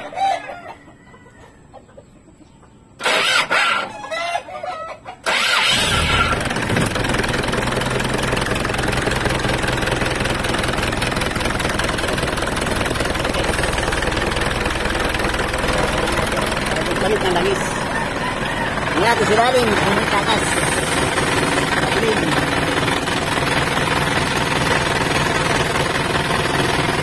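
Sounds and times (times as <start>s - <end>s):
chicken clucking: 0.0s - 5.4s, 15.2s - 22.4s
diesel engine starting and idling: 3.0s - 3.9s, 5.2s - 27.0s.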